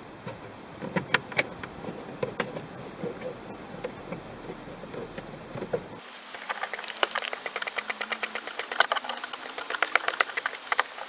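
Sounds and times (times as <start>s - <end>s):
low background rumble: 0.0s - 6.0s
screwdriver clicking: 6.4s - 11.0s.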